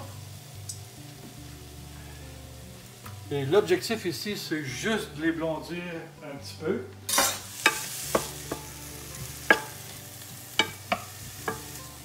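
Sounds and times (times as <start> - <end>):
onions sizzling in a pan: 0.0 - 4.2, 7.1 - 12.0
utensil knocking against pan: 7.7 - 8.8, 9.4 - 9.8, 10.6 - 11.8.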